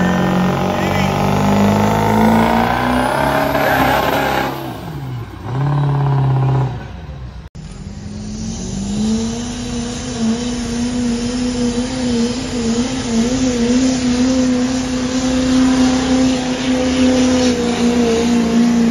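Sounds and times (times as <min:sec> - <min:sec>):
diesel truck engine under load: 0:00.0 - 0:15.5
diesel engine at high revs: 0:00.0 - 0:18.9.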